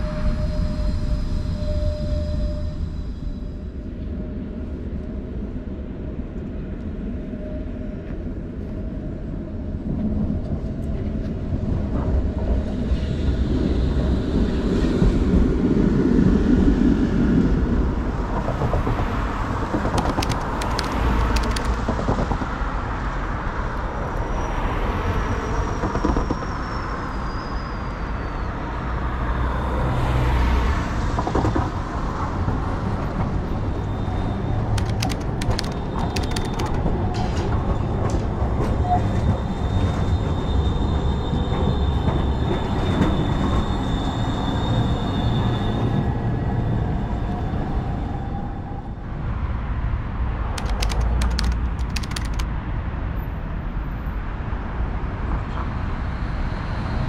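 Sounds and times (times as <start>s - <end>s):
faint high squeal: 0.0s - 4.0s, 24.3s - 28.8s
wheels clicking on rails: 19.7s - 22.6s, 34.8s - 37.4s, 50.6s - 52.4s.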